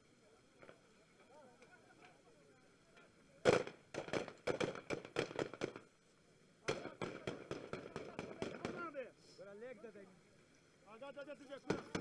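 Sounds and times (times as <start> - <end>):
rapid rifle shots: 3.4 - 5.8, 6.7 - 8.9.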